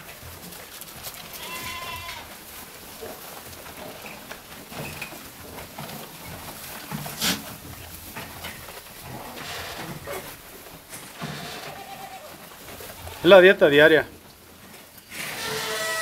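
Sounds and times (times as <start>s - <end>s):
goats feeding rustling and knocks: 0.0s - 16.0s.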